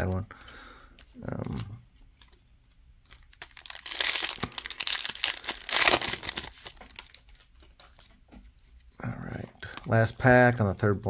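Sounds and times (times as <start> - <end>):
foil wrapper crinkling: 3.1 - 8.0.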